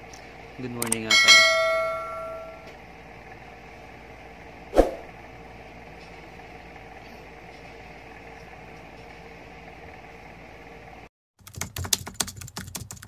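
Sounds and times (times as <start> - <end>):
faint room hum: 0.0 - 13.0
sharp click: 0.8 - 1.0
bell-like ding: 1.1 - 2.7.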